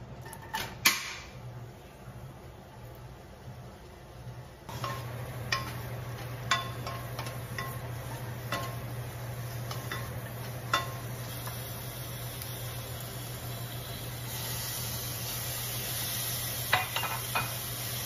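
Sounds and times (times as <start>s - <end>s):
onions sizzling in a saucepan: 1.7s - 18.0s
spatula tapping a pan: 4.7s - 11.6s.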